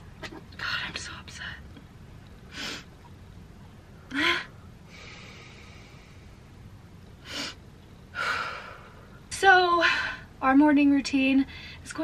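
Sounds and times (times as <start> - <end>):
soft breathing: 4.1 - 6.6.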